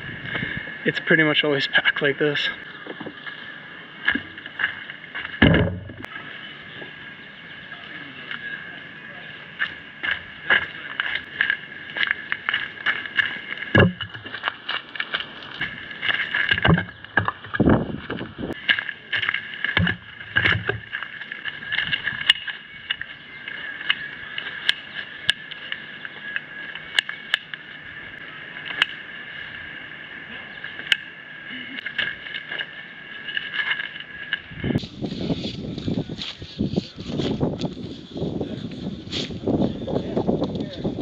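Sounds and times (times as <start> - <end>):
firewood logs thudding: 4.0 - 6.1, 9.6 - 23.0.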